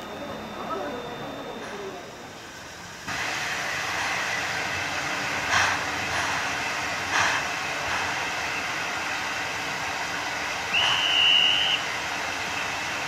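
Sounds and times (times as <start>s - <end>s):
heavy locomotive exhaust chuffs: 0.0s - 13.0s
steam hissing: 1.7s - 13.0s.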